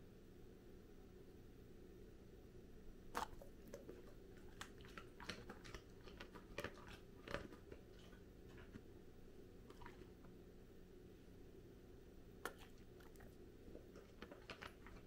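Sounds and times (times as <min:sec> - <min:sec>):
dog crunching carrot: 0:03.1 - 0:09.0, 0:09.6 - 0:10.4, 0:12.4 - 0:15.0.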